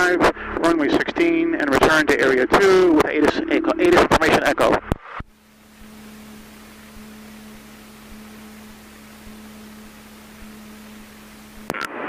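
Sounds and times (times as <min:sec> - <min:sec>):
low electrical hum: 0:00.0 - 0:12.0
steady hiss: 0:05.2 - 0:11.8.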